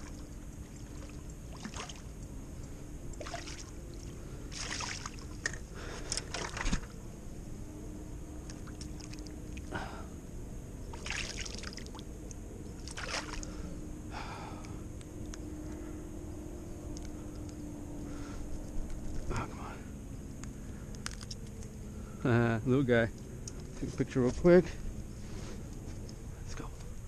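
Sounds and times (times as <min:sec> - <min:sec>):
water splashing: 0:00.0 - 0:02.1, 0:03.2 - 0:05.4, 0:06.1 - 0:06.9, 0:10.9 - 0:12.0, 0:12.8 - 0:13.5
steady low hum: 0:00.0 - 0:27.0.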